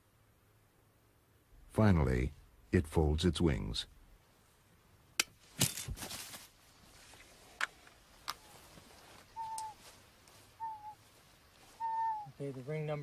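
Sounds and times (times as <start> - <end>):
whistled bird calls: 9.3 - 9.8, 10.6 - 11.0, 11.8 - 12.4.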